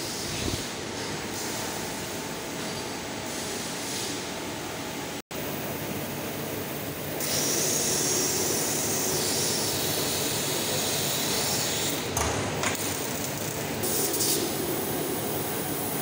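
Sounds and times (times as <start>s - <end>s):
air hissing: 7.2s - 12.0s.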